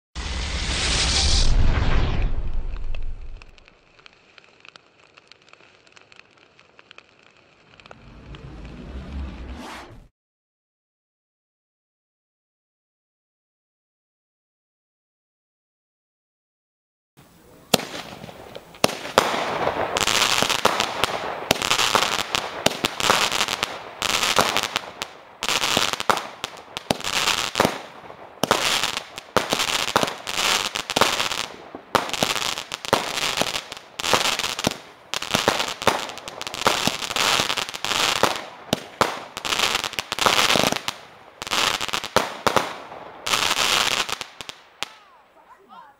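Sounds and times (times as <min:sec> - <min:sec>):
firework shots bursting: 0:00.2 - 0:04.0, 0:17.7 - 0:45.1
fizzing crackle of stars: 0:00.2 - 0:09.6.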